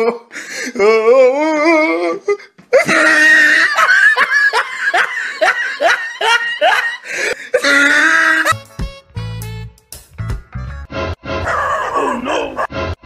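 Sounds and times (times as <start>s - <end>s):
person laughing: 2.7s - 8.6s
background music: 8.1s - 13.0s.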